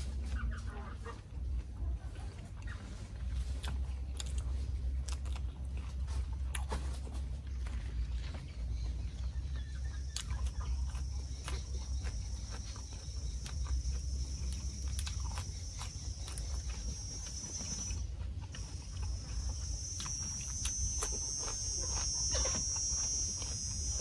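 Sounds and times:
person chewing and lip smacking: 0:00.2 - 0:24.0
insects buzzing: 0:07.7 - 0:24.0.

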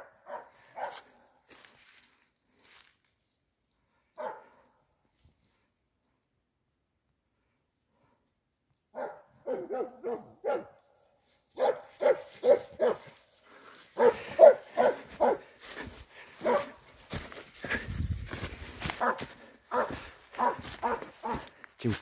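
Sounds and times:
dog barking sharply: 0:00.0 - 0:01.1, 0:04.2 - 0:04.6, 0:09.0 - 0:10.8, 0:11.6 - 0:13.2, 0:14.0 - 0:15.5, 0:16.4 - 0:16.8, 0:19.0 - 0:21.5.

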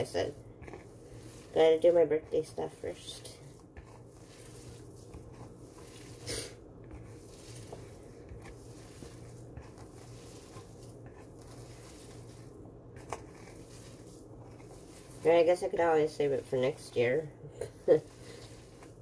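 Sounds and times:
hand squelching filling in bowl: 0:00.0 - 0:17.0, 0:17.6 - 0:19.0
low steady hum: 0:00.0 - 0:19.0.

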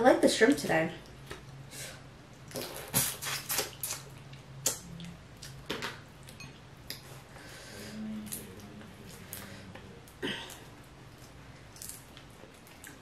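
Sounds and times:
wet chewing and sucking: 0:02.3 - 0:05.6
closed-mouth hum: 0:06.5 - 0:13.0.

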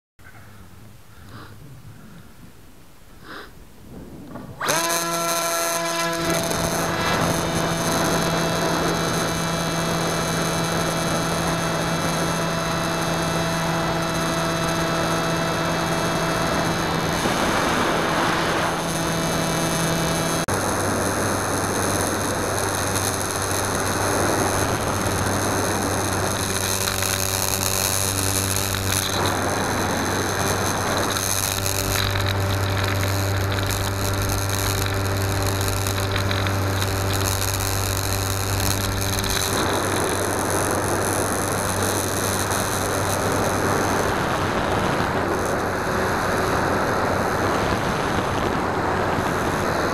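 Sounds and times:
hiss: 0:03.2 - 0:04.2
electric motor and propeller whine: 0:03.8 - 0:49.9.

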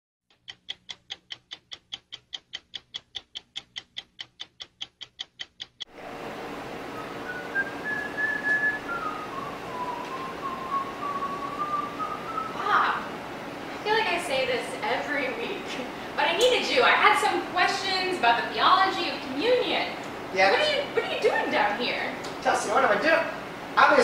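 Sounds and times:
stopwatch ticking: 0:00.3 - 0:05.9
room hum: 0:00.3 - 0:24.0
person whistling: 0:07.0 - 0:12.6.

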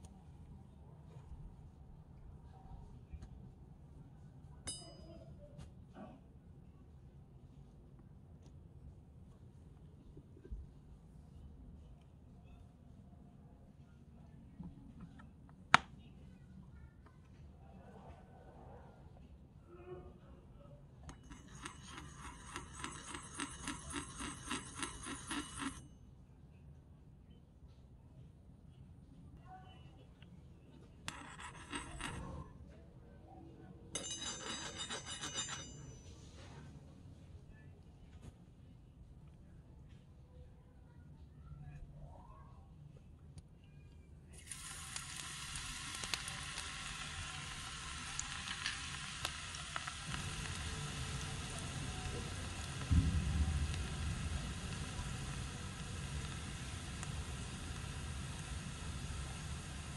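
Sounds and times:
metal spoon scraping a wok: 0:21.1 - 0:25.7, 0:31.1 - 0:32.4, 0:34.0 - 0:35.8
oil popping and crackling: 0:44.4 - 0:59.8
garlic sizzling in hot oil: 0:44.4 - 0:59.9.

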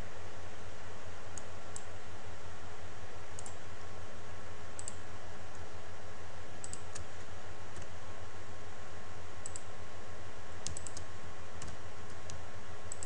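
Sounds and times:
low hum and hiss: 0:00.0 - 0:13.0
computer mouse clicks: 0:01.4 - 0:01.9, 0:03.4 - 0:03.6, 0:04.8 - 0:05.7, 0:06.6 - 0:07.9, 0:09.4 - 0:09.7, 0:10.6 - 0:13.0.

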